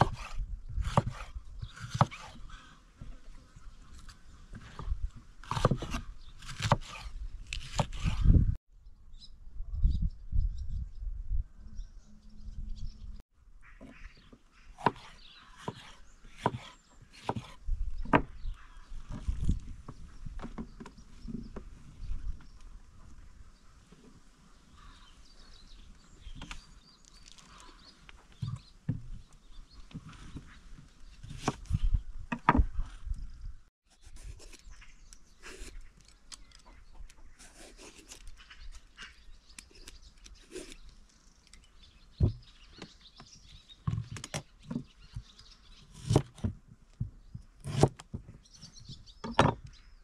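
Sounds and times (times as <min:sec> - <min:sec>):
faint birds chirping: 0:00.0 - 0:07.9, 0:08.7 - 0:50.0
peeler scraping vegetable: 0:33.9 - 0:41.0.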